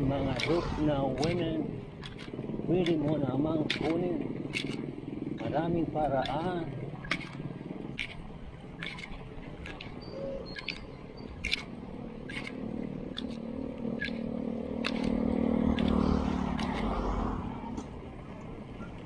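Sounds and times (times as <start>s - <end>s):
vehicle engine passing: 0.0s - 6.6s, 11.4s - 18.9s
sharp clicks: 8.0s - 13.4s.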